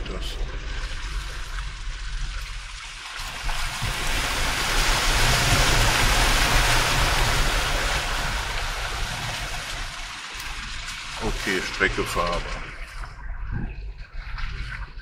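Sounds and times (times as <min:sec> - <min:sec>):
vehicle driving on rough track: 0:03.4 - 0:12.9.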